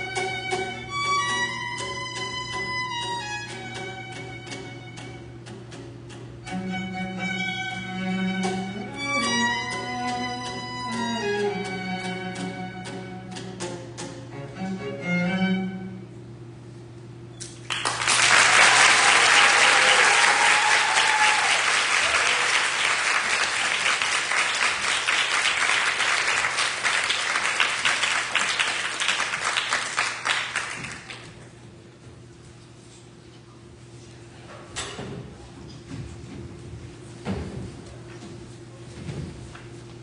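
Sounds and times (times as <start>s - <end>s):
violin and cello ensemble: 0.0s - 5.3s, 6.4s - 16.0s
audience applause: 17.6s - 31.4s.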